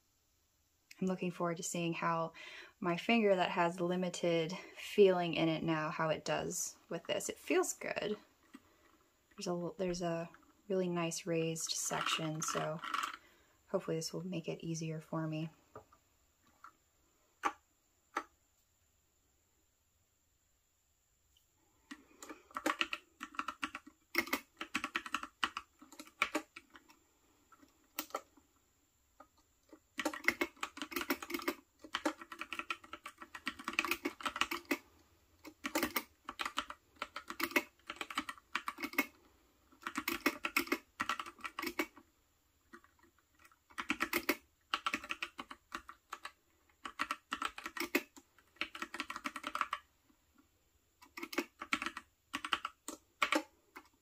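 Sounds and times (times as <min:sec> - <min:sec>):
mechanical keyboard typing: 0:11.7 - 0:13.2, 0:22.2 - 0:26.9, 0:27.6 - 0:28.4, 0:29.7 - 0:34.8, 0:35.4 - 0:42.0, 0:42.7 - 0:49.9, 0:51.0 - 0:54.0.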